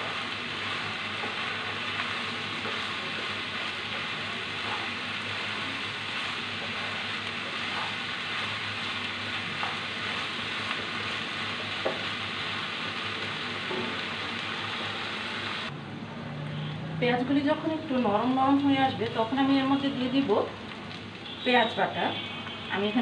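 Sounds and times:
food sizzling in oil: 0.0s - 15.7s, 17.0s - 23.0s
wooden spatula knocking pan: 11.8s - 12.1s.

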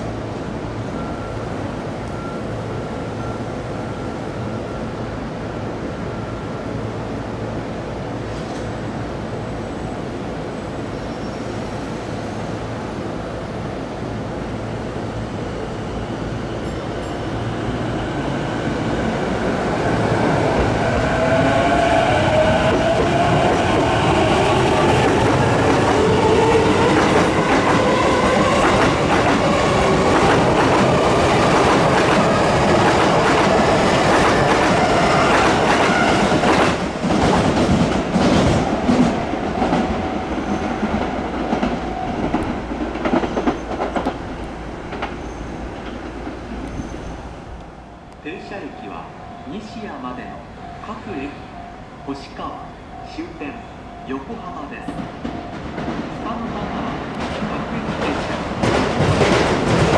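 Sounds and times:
train wheels clacking on rails: 21.6s - 47.1s, 54.1s - 59.9s.

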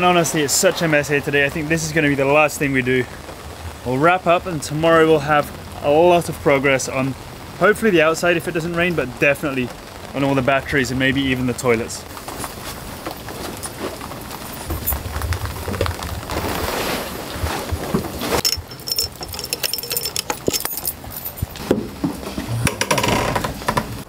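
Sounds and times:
metal tools clinking: 18.4s - 21.7s.

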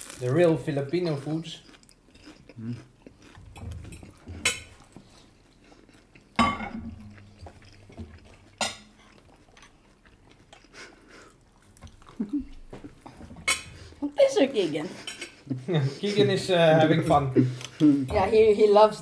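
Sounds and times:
chewing: 0.9s - 14.3s
cutlery clinking on dishes: 3.5s - 4.8s, 6.4s - 7.2s, 8.6s - 9.1s, 13.4s - 13.7s, 15.0s - 15.4s.

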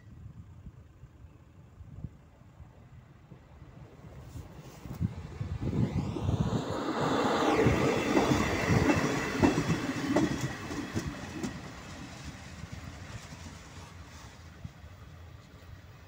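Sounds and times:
diesel railcar passing: 0.0s - 16.0s
wheels clicking over rail joints: 8.1s - 13.9s.

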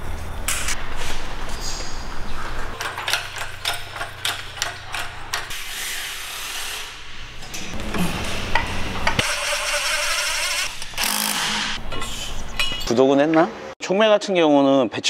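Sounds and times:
metallic clicks and clanks: 2.6s - 5.5s.

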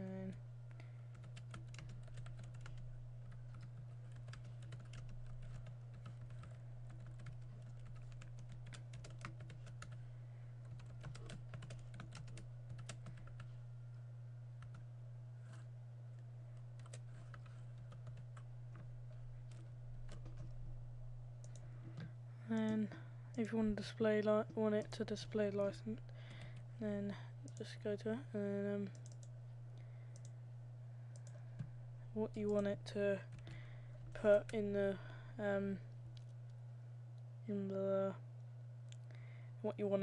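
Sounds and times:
steady low hum: 0.0s - 40.0s
computer keyboard typing: 1.1s - 10.0s, 10.6s - 13.5s, 16.8s - 18.4s, 19.5s - 20.6s, 28.9s - 29.3s, 31.1s - 31.7s.

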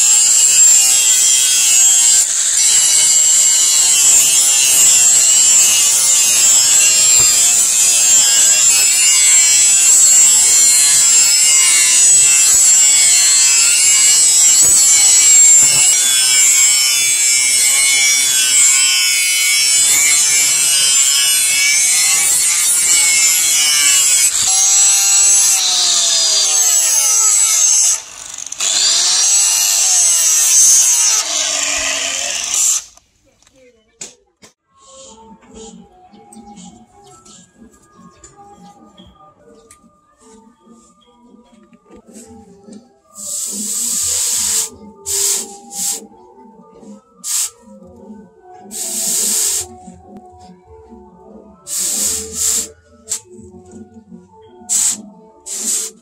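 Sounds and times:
angle grinder grinding steel: 0.0s - 33.0s, 43.2s - 46.1s, 48.6s - 49.9s, 51.7s - 53.4s, 54.7s - 56.0s.

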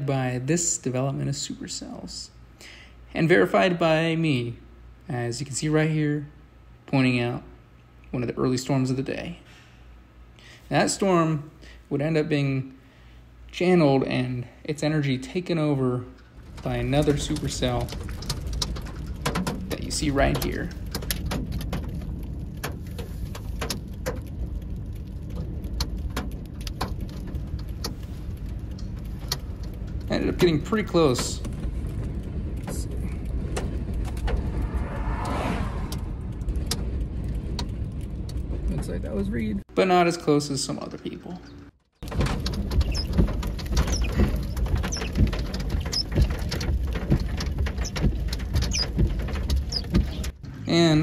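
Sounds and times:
steady low rumble: 0.0s - 39.8s
raindrops ticking on car: 16.2s - 34.3s, 42.0s - 51.0s
windshield wipers sweeping: 16.2s - 39.3s, 42.0s - 50.9s.

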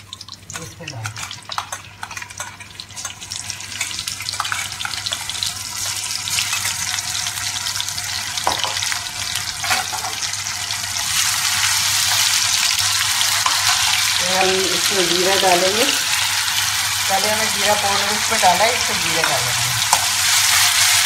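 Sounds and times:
paste sizzling in oil: 0.0s - 21.0s
spoon knocking against pan: 8.4s - 8.8s.

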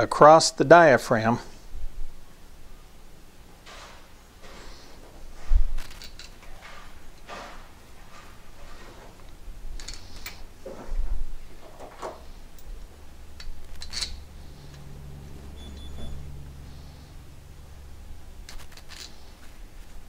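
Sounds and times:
metal parts rubbing: 3.6s - 10.6s, 11.7s - 15.0s, 16.2s - 20.0s.

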